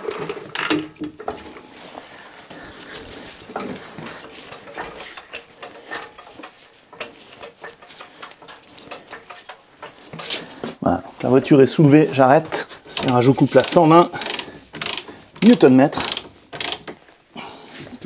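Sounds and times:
floor jack metallic clicks: 0:12.4 - 0:17.0.

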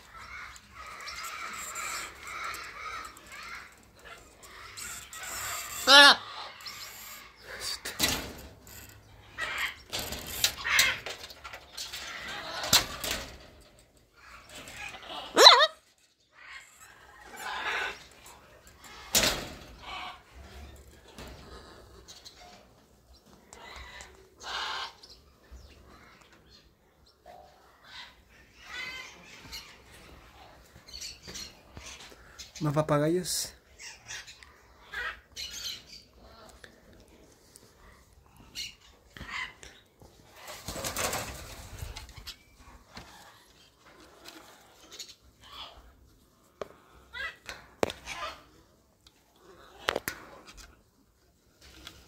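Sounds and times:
parrots calling: 0:00.0 - 0:08.0, 0:09.1 - 0:13.2, 0:14.1 - 0:19.2, 0:23.5 - 0:25.2, 0:27.2 - 0:32.5, 0:33.7 - 0:36.6, 0:37.8 - 0:40.5, 0:44.4 - 0:46.0, 0:46.8 - 0:48.6
harsh parrot squawks: 0:15.1 - 0:15.8.

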